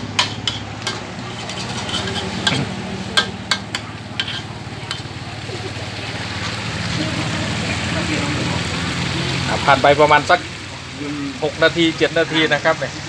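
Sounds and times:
spatula scraping a wok: 0.0s - 5.6s.

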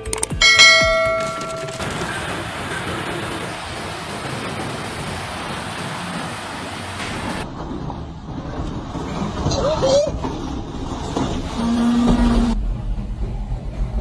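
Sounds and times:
howling storm wind: 0.4s - 11.6s
pouring rain and floodwater: 1.9s - 7.5s.

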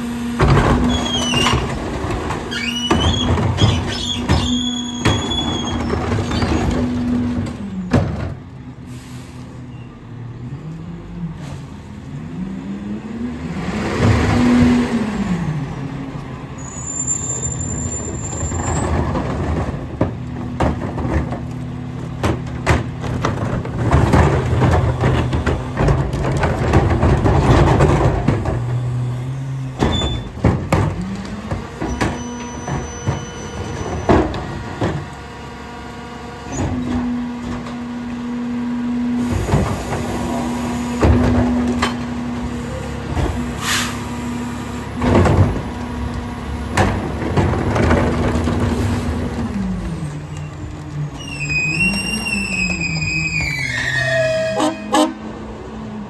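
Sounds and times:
bangs and knocks of carts dumped: 0.2s - 8.6s, 17.4s - 35.2s, 36.4s - 38.3s, 39.2s - 50.3s
garbage truck engine revving: 10.4s - 16.8s, 17.8s - 56.0s.

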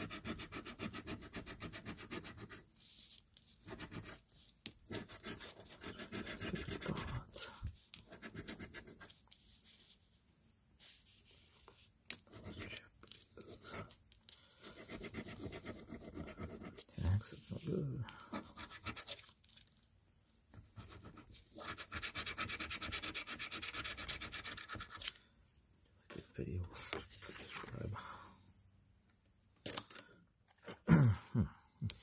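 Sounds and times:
low voice-like sound: 30.7s - 32.0s.

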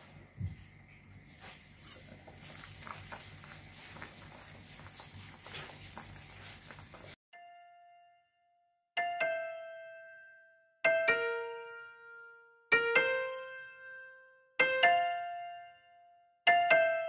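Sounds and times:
stew simmering with bubbling pops: 1.0s - 7.2s.

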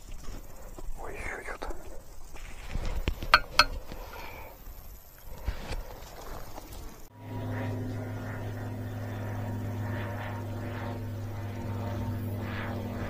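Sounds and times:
metal detector signal tone: 3.3s - 3.8s.

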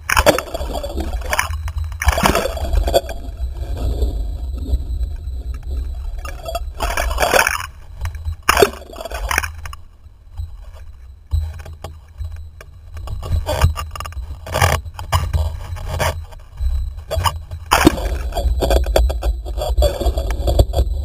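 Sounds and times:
water splashing and rushing: 0.0s - 3.1s
wind rumble on microphone: 0.0s - 21.0s.

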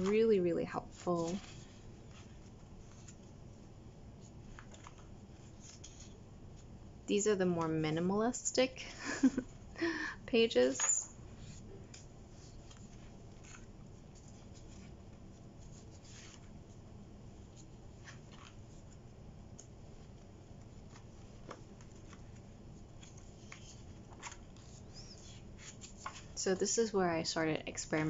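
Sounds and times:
pages turning: 0.0s - 3.4s, 4.2s - 6.7s, 10.6s - 16.8s, 17.4s - 26.4s
low room hum: 0.0s - 28.0s.

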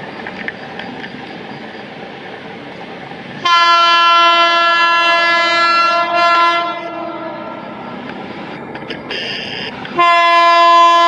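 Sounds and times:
train rumble: 0.0s - 11.0s
train horn blast: 3.4s - 7.8s, 9.1s - 11.0s.

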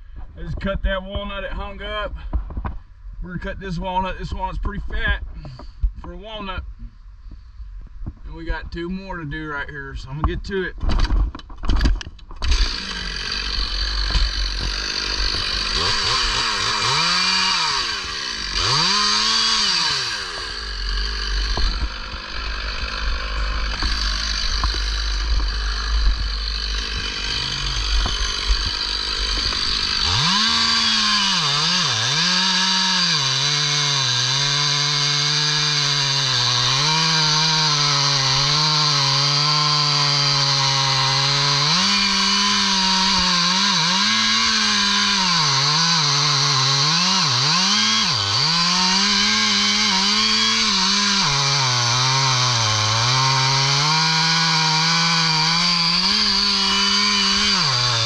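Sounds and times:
chainsaw revving and cutting wood: 12.4s - 58.0s.

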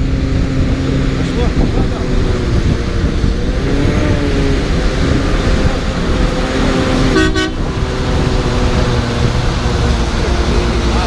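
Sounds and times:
truck diesel engine rumbling: 0.0s - 11.0s
short horn toot: 7.1s - 7.6s.

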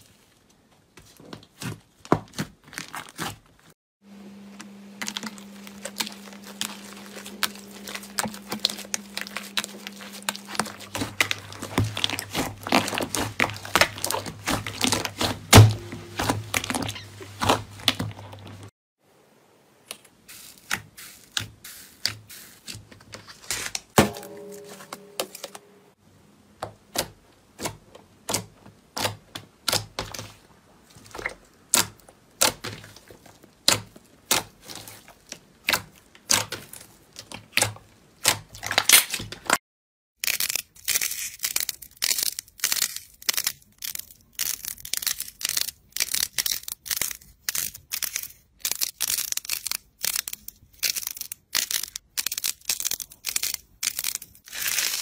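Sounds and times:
foam clay crackling: 0.0s - 18.7s, 19.7s - 26.0s, 26.6s - 39.6s, 40.2s - 55.0s
slime squeak: 5.7s - 18.3s.

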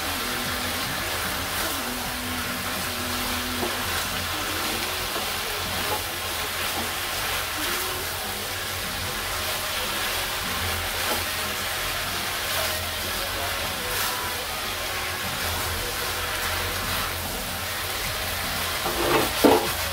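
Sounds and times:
vegetables sizzling in a wok: 0.0s - 19.9s
spatula scraping a pan: 8.6s - 19.9s.

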